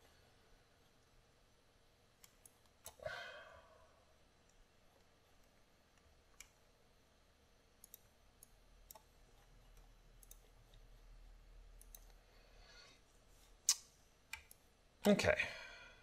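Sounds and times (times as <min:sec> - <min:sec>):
computer mouse clicks: 0:02.2 - 0:03.0, 0:04.5 - 0:06.6, 0:07.8 - 0:12.2, 0:13.6 - 0:15.2.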